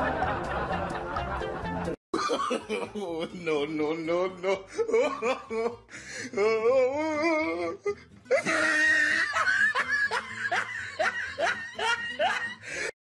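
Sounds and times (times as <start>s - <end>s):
person laughing: 2.2s - 5.8s, 6.4s - 12.9s.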